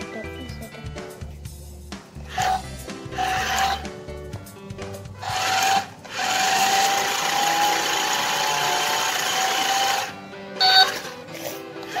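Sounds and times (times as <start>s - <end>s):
toy car motor whirring: 3.2s - 3.8s, 5.2s - 12.0s.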